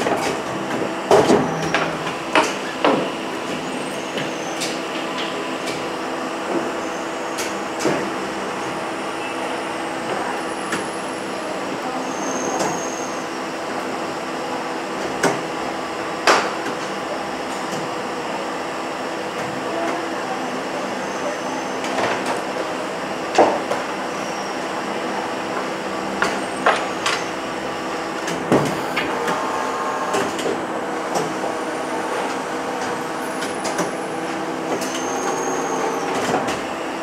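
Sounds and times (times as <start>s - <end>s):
moulding machine humming: 24.7s - 37.0s.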